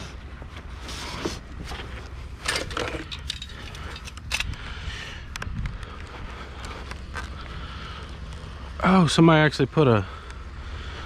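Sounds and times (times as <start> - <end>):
hands rummaging through items: 0.0 - 4.4
steady low rumble: 0.0 - 11.0.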